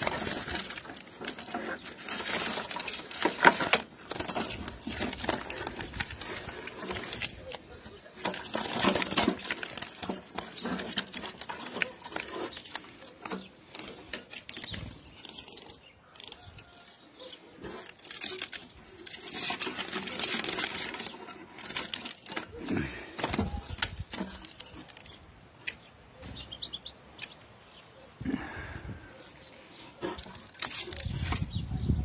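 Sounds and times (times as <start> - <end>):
wings fluttering: 0.0 - 27.4, 28.3 - 32.0
faint high bird chirps: 24.5 - 28.2.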